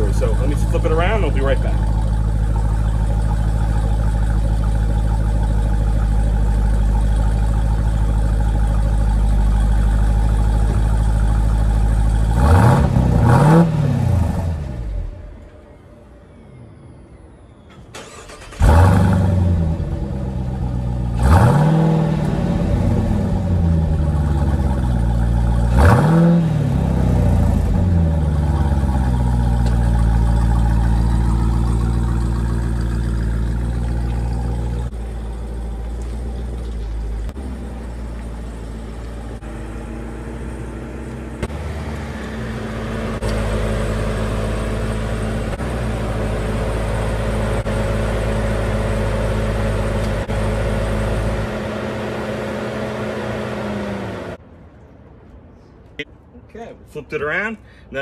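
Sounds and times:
car engine driving and idling: 0.0 - 58.0
engine revving: 12.1 - 15.1, 18.0 - 54.4.

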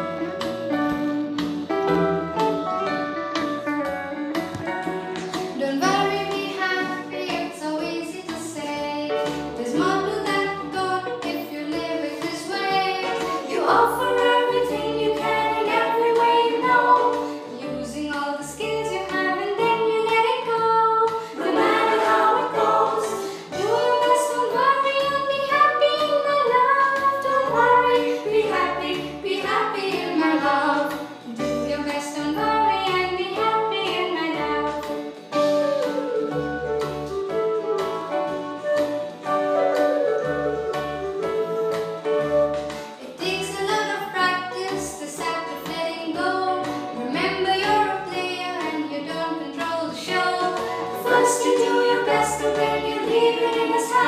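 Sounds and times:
instrumental backing with low beat: 0.0 - 7.5
woman singing: 5.5 - 34.9, 43.0 - 54.0.

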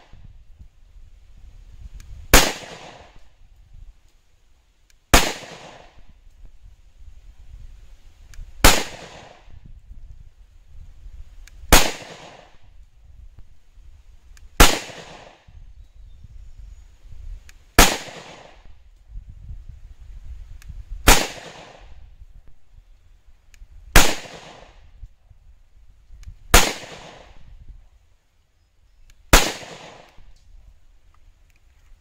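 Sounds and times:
pistol shots with echo: 2.4 - 3.2, 5.2 - 6.0, 8.6 - 9.5, 11.7 - 12.6, 14.6 - 15.4, 17.8 - 18.7, 21.1 - 21.9, 24.0 - 24.8, 26.5 - 27.4, 29.3 - 30.2.

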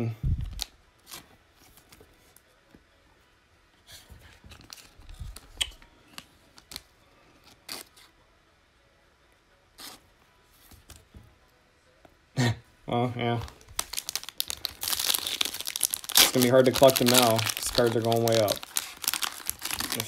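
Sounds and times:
plastic card sleeve handled: 0.3 - 2.1, 4.3 - 8.1, 13.4 - 20.0
trading cards rustling: 13.3 - 20.0.

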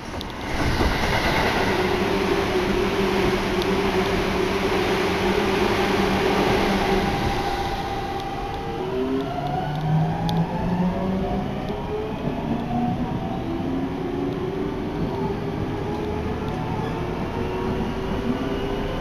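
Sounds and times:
electric train rumbling: 0.0 - 19.0.

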